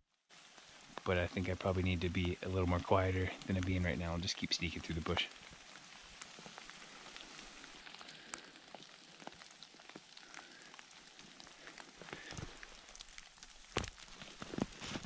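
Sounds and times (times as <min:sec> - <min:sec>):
light rain pattering: 0:00.1 - 0:15.0.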